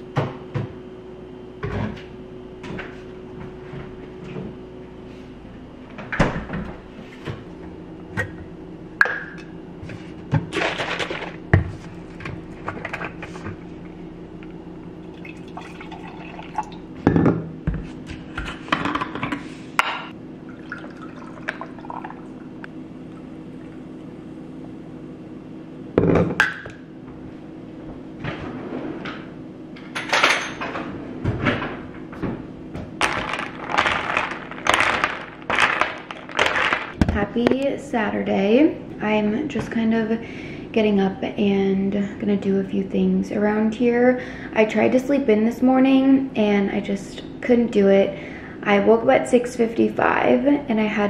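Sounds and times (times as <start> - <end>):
faint steady hum: 0.0 - 51.0
liquid pouring: 15.1 - 16.8, 20.5 - 22.6
ice cubes clinking into glass: 33.0 - 37.0.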